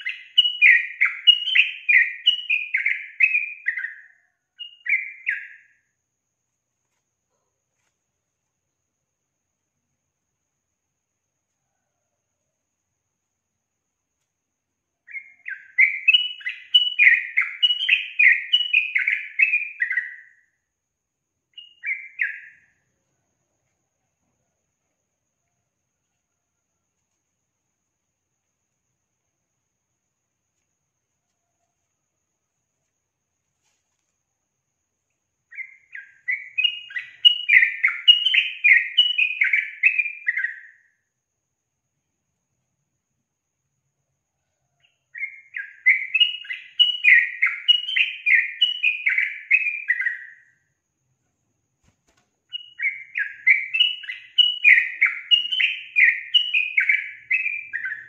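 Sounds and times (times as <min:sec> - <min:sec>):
bird singing: 0:00.0 - 0:06.0, 0:14.9 - 0:20.7, 0:21.4 - 0:24.3, 0:35.4 - 0:41.0, 0:44.4 - 0:50.8, 0:52.4 - 0:58.0
bird singing descending notes: 0:52.5 - 0:58.0.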